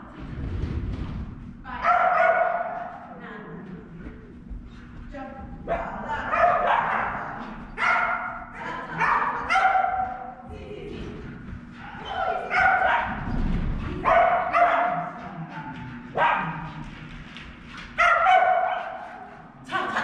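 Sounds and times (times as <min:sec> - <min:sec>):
dog barking: 0:01.8 - 0:03.0, 0:05.7 - 0:10.4, 0:11.8 - 0:13.4, 0:14.0 - 0:15.2, 0:16.1 - 0:16.8, 0:18.0 - 0:19.4.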